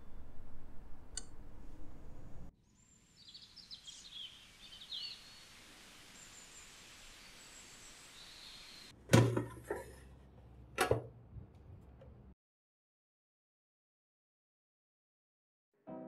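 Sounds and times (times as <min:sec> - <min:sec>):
faint outdoor hiss: 0:00.0 - 0:08.9
birds chirping: 0:03.2 - 0:08.9.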